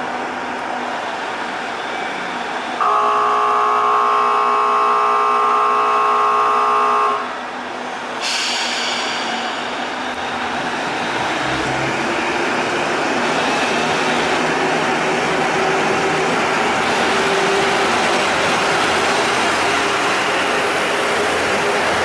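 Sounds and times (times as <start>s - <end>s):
hiss: 8.2s - 10.1s.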